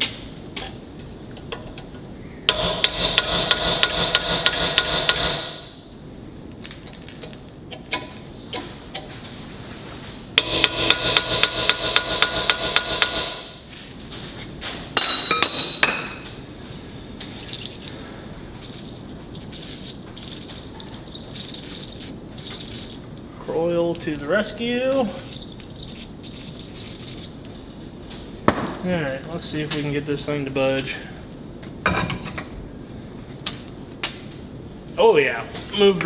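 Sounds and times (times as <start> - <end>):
hammer striking steel punch: 2.5 - 5.7, 10.4 - 13.5.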